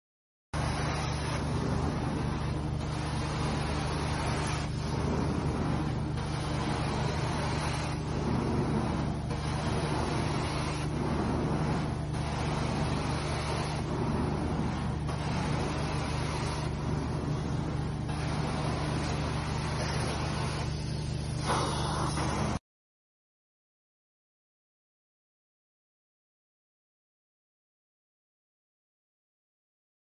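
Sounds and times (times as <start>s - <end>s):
extraction machine humming: 0.6s - 22.6s
vacuum wand hissing: 0.6s - 22.6s.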